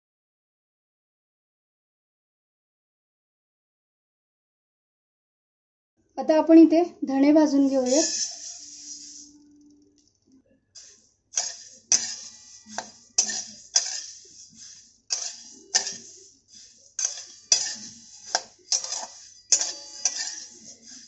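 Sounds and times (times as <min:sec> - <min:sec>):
seeds rattling in metal pan: 0:07.6 - 0:09.5, 0:10.8 - 0:21.0.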